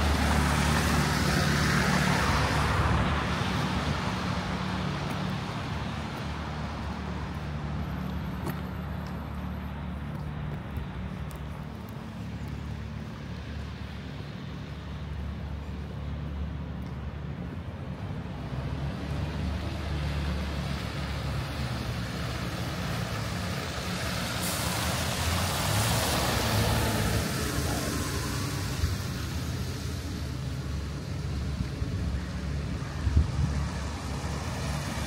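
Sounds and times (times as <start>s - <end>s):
street traffic: 0.0s - 35.0s
sharp hiss: 24.3s - 25.2s.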